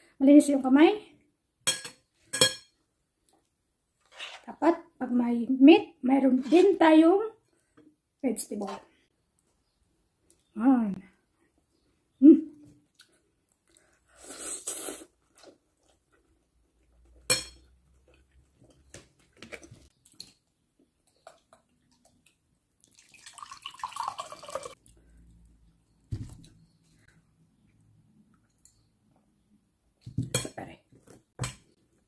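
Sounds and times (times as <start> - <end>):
drink pouring into a glass: 22.8 - 24.8.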